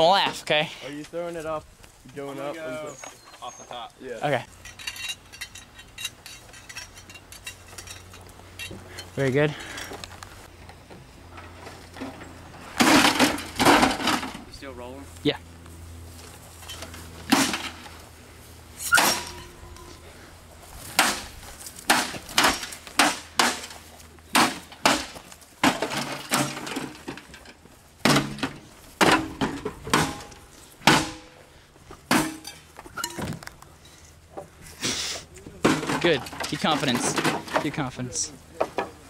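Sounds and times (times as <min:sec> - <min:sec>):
sheet metal casing being struck: 0:18.8 - 0:20.0.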